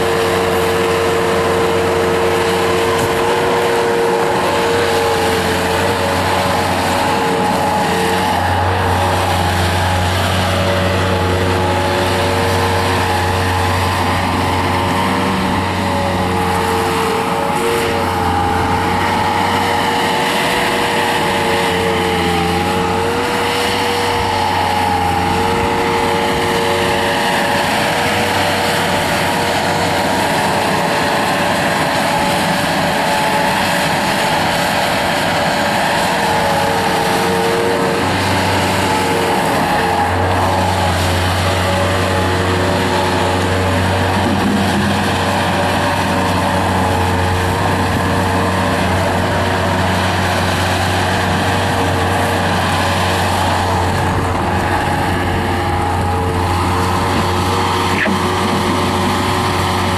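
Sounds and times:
diesel loader engine running: 0:00.0 - 0:59.9
steady whine: 0:00.0 - 0:59.9.

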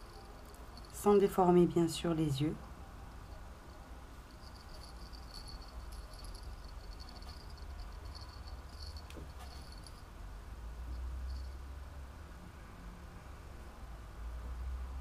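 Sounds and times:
small bell tinkling: 0:00.0 - 0:01.4, 0:04.2 - 0:10.2, 0:10.9 - 0:11.8.

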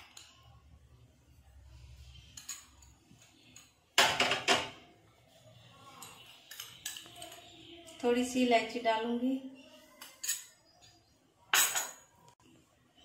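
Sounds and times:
dishes knocking: 0:04.0 - 0:04.9, 0:11.6 - 0:12.1.

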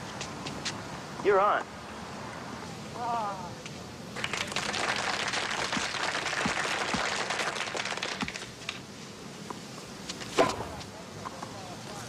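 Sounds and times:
spectators clapping: 0:04.2 - 0:08.8.

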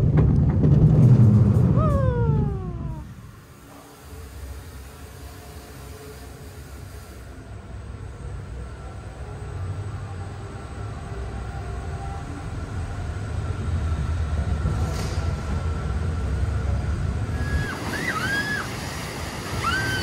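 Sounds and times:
roller coaster rumbling: 0:00.0 - 0:03.8, 0:07.8 - 0:20.0.

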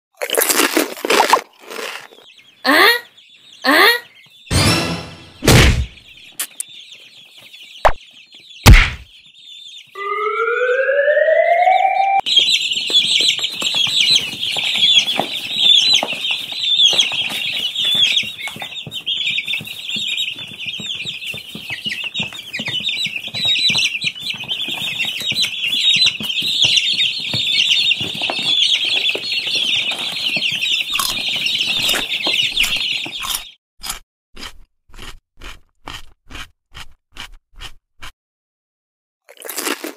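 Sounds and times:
chicks peeping: 0:01.2 - 0:33.6
sharp knocks: 0:08.6 - 0:09.1
rising whistle-like glide: 0:10.0 - 0:12.2.

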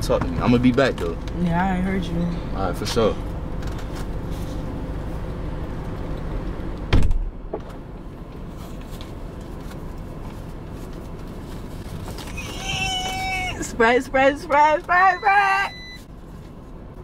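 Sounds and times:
car engine hum: 0:00.0 - 0:17.0
car door shutting thud: 0:06.9 - 0:07.8.

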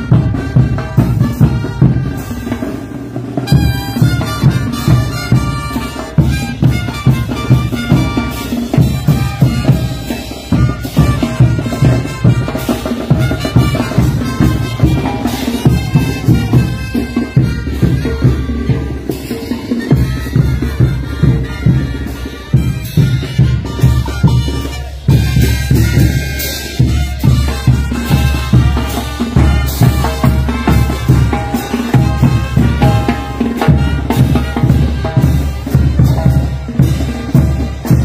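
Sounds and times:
bass drums beating: 0:00.0 - 0:38.0
brass band playing dance music: 0:00.0 - 0:38.0
brass horns playing a tune: 0:00.0 - 0:38.0
cymbals crashing: 0:00.0 - 0:38.0.

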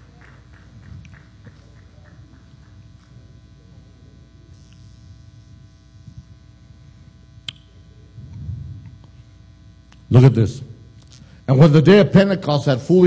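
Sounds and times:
electrical hum and buzz: 0:00.0 - 0:13.0
low room rumble: 0:00.0 - 0:13.0
sharp click: 0:07.4 - 0:07.7.

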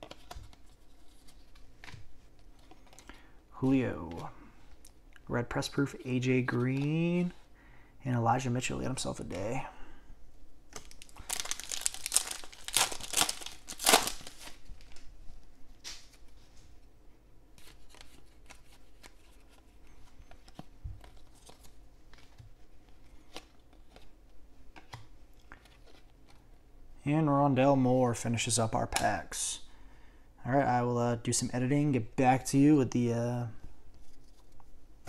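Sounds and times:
cards rustling and ticking: 0:00.0 - 0:05.0, 0:05.6 - 0:07.4, 0:10.7 - 0:15.1, 0:17.6 - 0:26.5
wrapper tearing and crinkling: 0:10.8 - 0:15.0.

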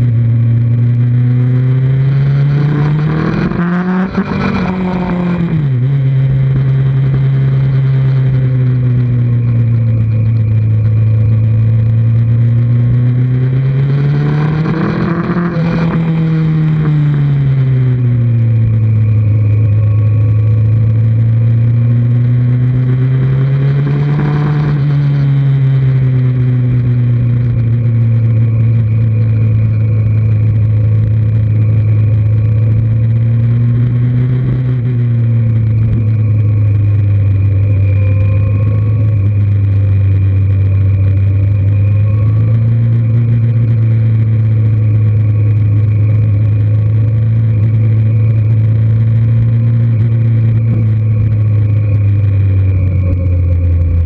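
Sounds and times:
motorcycle engine cruising: 0:00.0 - 0:54.0
rushing noise: 0:23.2 - 0:54.0.

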